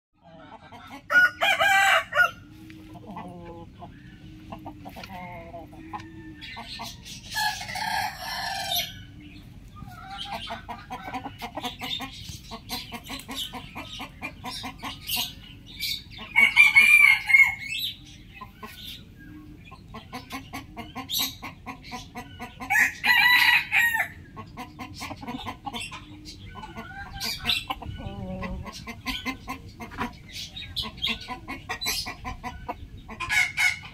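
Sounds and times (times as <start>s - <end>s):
rooster crowing: 1.1s - 2.4s, 16.4s - 17.6s, 22.7s - 24.2s.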